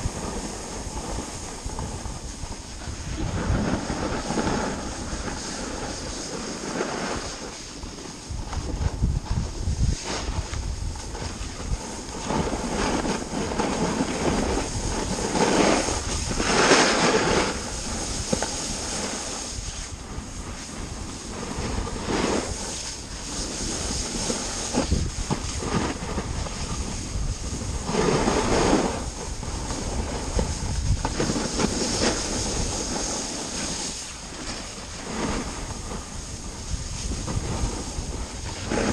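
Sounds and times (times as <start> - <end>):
snowboard scraping on snow: 0.0 - 38.9
wind on microphone: 0.0 - 38.9.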